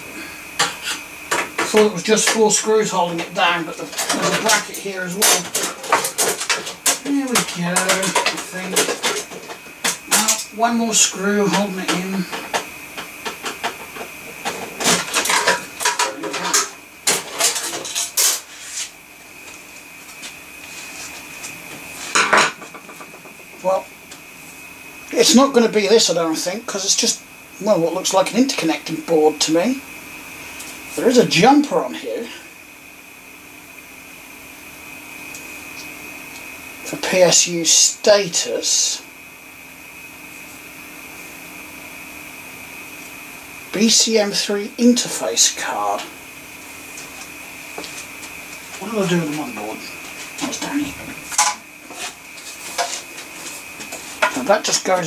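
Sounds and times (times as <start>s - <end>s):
computer cooling fans whirring: 0.0s - 55.0s
faint high whine: 0.0s - 55.0s
clicks scrapes and metal rattles: 3.8s - 10.5s, 14.5s - 18.9s.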